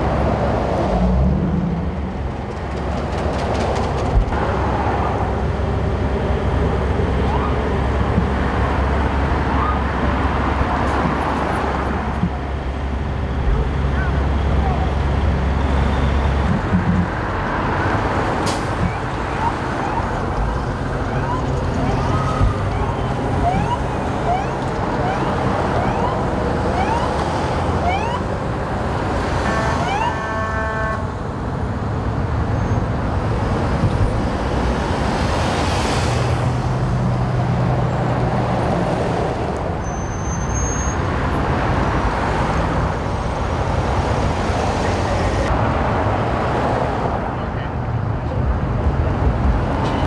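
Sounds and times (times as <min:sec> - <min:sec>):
freeway traffic passing: 0:00.0 - 0:50.0
ambulance siren sweeps: 0:07.2 - 0:07.7, 0:09.5 - 0:09.9, 0:21.1 - 0:28.3, 0:29.5 - 0:30.3.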